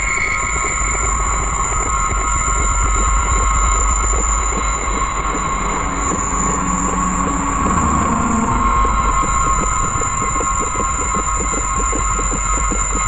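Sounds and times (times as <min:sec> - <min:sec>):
low humming tones: 0:01.2 - 0:13.0
low rumble: 0:02.6 - 0:12.7
steady high tones: 0:05.4 - 0:12.6.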